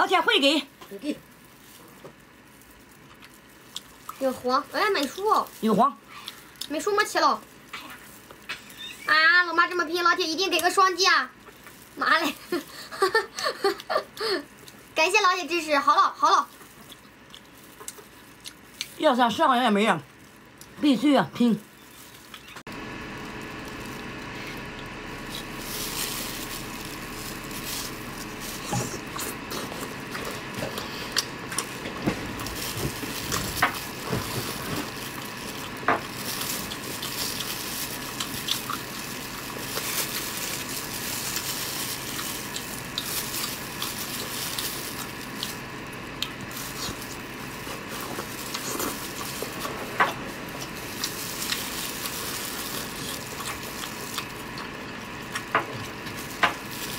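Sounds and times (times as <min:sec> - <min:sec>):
wet squishing: 0:01.2 - 0:09.9, 0:21.6 - 0:56.9.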